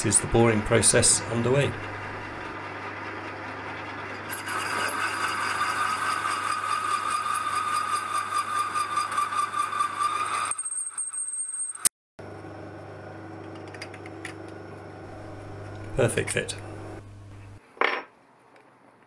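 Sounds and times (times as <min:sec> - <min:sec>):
lathe motor hum: 0:00.0 - 0:10.5, 0:12.2 - 0:17.6
high whine of metal cutting: 0:00.0 - 0:10.6.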